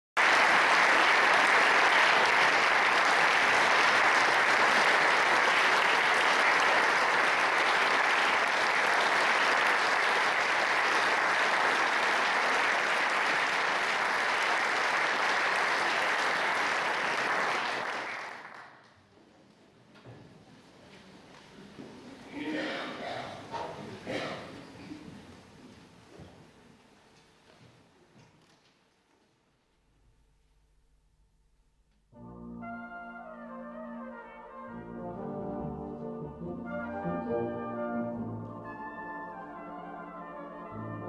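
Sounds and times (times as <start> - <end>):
audience applauding: 0.2 - 18.9.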